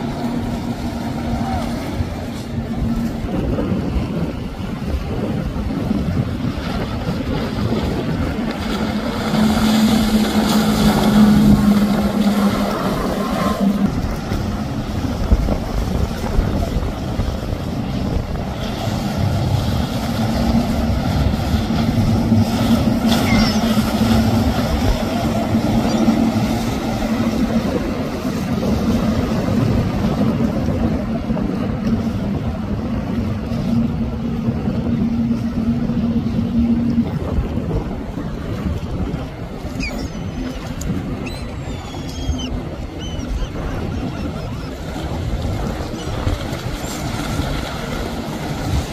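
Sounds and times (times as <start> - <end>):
motorboat engines droning: 0.0 - 48.9
wind noise on microphone: 0.0 - 48.9.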